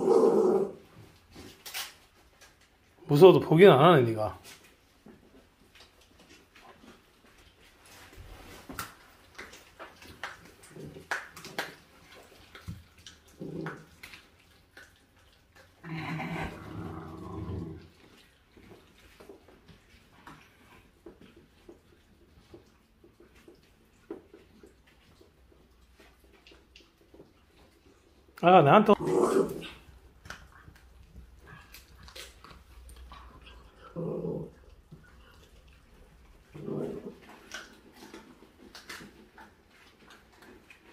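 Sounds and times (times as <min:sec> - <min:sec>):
dog growling: 0:00.0 - 0:00.8, 0:13.3 - 0:14.1, 0:15.8 - 0:18.0, 0:28.9 - 0:29.9, 0:33.0 - 0:38.3
dogs chewing and licking: 0:00.8 - 0:40.9.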